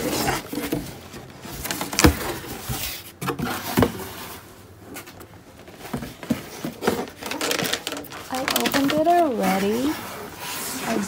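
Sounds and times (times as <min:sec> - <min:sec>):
cardboard boxes knocking and rustling: 0:00.0 - 0:10.2.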